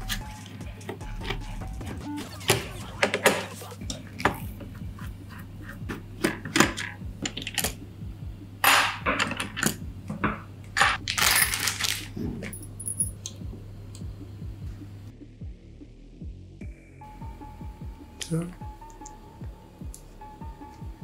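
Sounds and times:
small metal parts clinking: 0:10.8 - 0:13.3.

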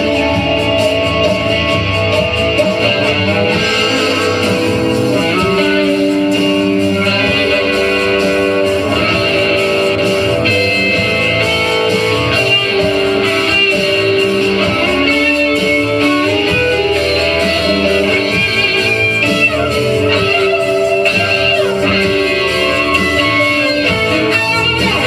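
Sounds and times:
rock band playing: 0:03.3 - 0:06.2
guitar long held notes: 0:03.3 - 0:07.0.

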